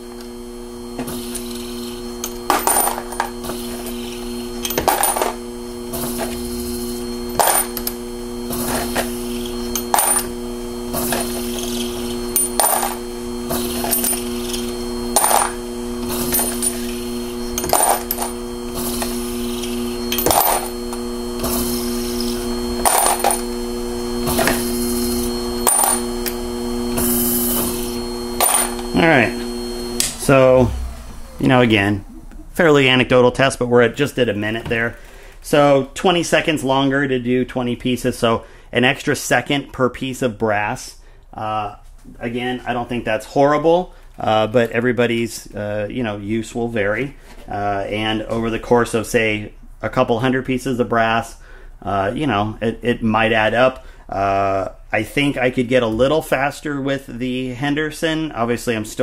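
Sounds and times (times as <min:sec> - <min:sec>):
electric motor humming: 0:00.0 - 0:32.6.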